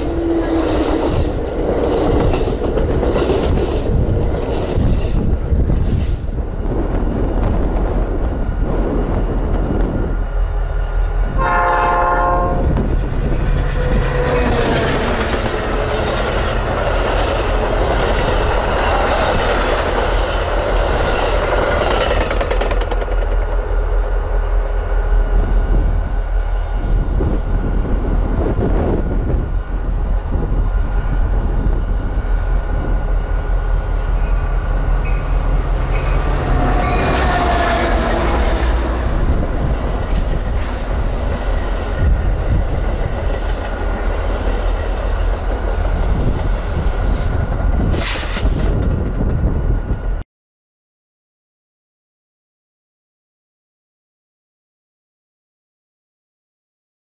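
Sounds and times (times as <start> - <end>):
train rumbling past: 0.0 - 50.2
train wheels squealing: 6.4 - 11.4, 30.8 - 33.3, 34.0 - 50.2
train horn blast: 11.3 - 12.9.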